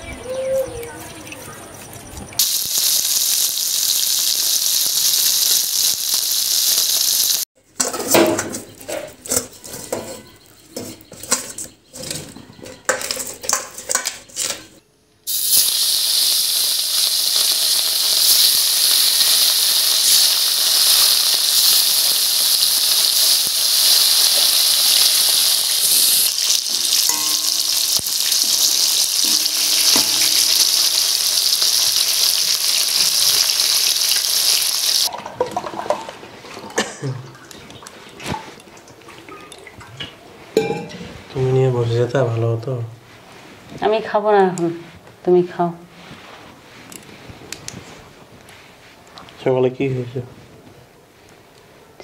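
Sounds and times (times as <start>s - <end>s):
fish sizzling in hot oil: 2.4s - 7.5s, 15.3s - 35.1s.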